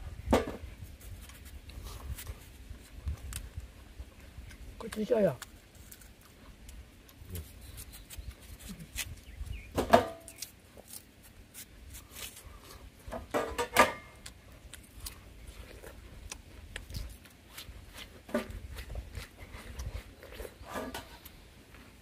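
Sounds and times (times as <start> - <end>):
chewing and lip-smacking: 1.0 - 9.6, 14.1 - 20.6.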